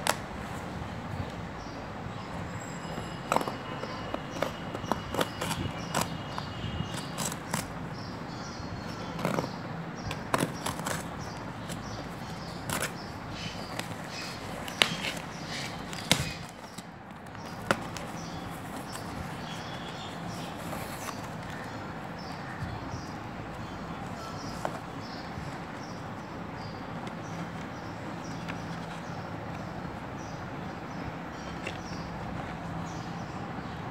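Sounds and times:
paper envelope rustling: 10.2s - 21.8s.

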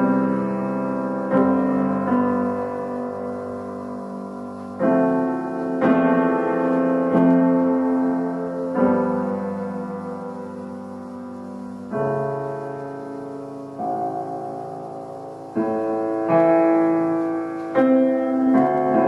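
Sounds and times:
slow solo piano chords: 0.0s - 19.0s.

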